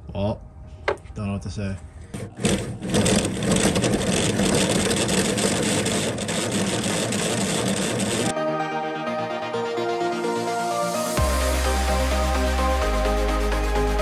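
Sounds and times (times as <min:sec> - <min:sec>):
cordless drill boring into metal: 0:02.2 - 0:08.3.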